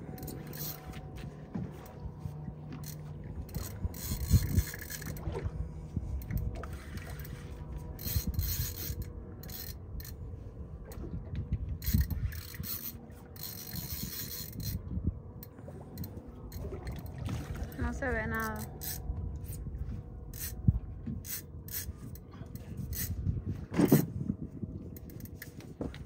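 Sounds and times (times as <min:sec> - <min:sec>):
faint steady hum: 0:00.0 - 0:26.0
fishing reel rubbing and scraping: 0:00.1 - 0:01.0, 0:02.8 - 0:05.2, 0:06.9 - 0:10.2, 0:11.8 - 0:14.8, 0:18.2 - 0:19.6, 0:20.3 - 0:20.6, 0:21.2 - 0:23.3.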